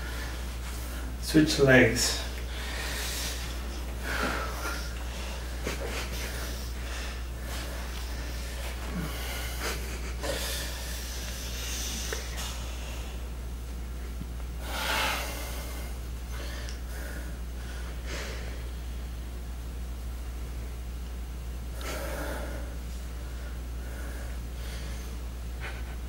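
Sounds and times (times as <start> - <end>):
steady low hum: 0.0 - 26.0
heavy breathing: 2.0 - 13.3, 14.6 - 18.8, 21.8 - 26.0.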